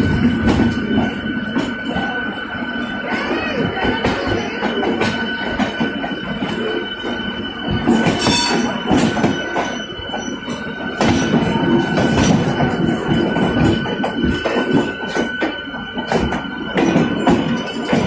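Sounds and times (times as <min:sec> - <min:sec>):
train wheels knocking on rail joints: 0:00.0 - 0:02.2, 0:03.1 - 0:18.0
high-pitched wheel squeal: 0:06.5 - 0:10.7.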